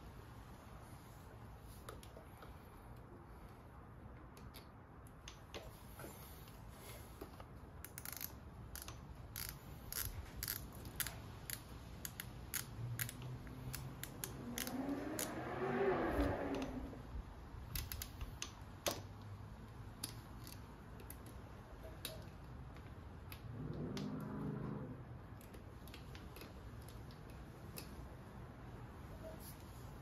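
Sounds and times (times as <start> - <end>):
small metal clicks: 7.8 - 15.4, 17.6 - 24.1.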